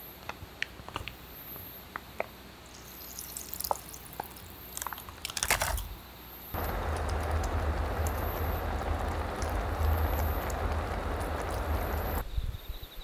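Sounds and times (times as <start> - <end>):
low hum: 6.6 - 12.2
pasta sauce bubbling in a pot: 6.6 - 12.2.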